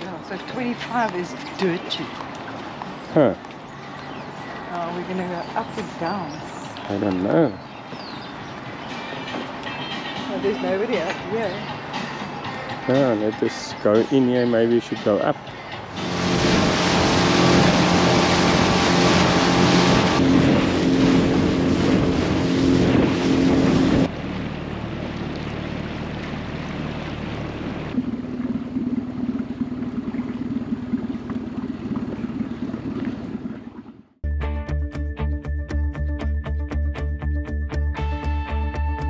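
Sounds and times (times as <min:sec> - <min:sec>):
water noise: 0:00.0 - 0:34.2
wind: 0:00.0 - 0:34.2
outboard motor running: 0:15.8 - 0:34.2.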